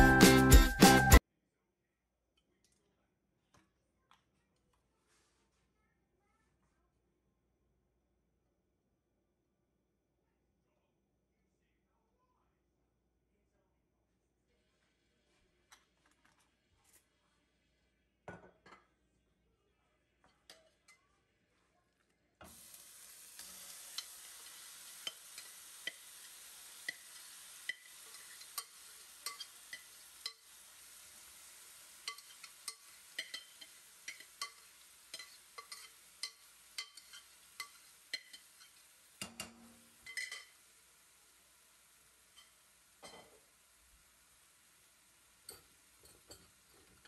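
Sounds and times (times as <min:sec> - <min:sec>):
meat sizzling in oil: 0:22.5 - 0:47.0
oil popping and crackling: 0:22.5 - 0:47.0.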